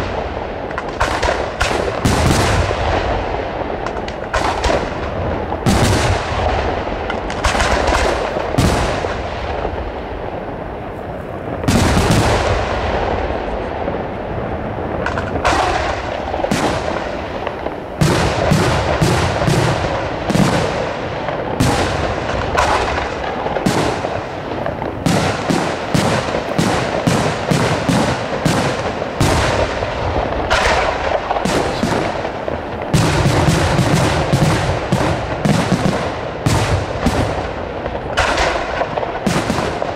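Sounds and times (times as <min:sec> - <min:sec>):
firework shells bursting: 0:03.6 - 0:09.8, 0:14.9 - 0:39.9.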